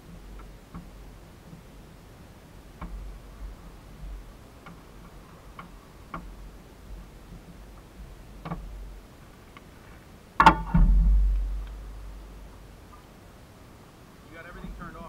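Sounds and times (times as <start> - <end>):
faint clicks: 4.6 - 6.4, 9.3 - 9.7
low rumble: 10.6 - 12.7.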